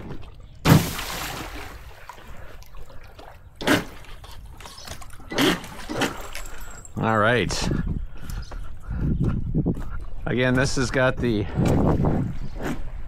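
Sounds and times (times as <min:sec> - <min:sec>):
boat hull splashing into water: 0:00.0 - 0:02.2
water trickling and lapping: 0:00.0 - 0:13.0.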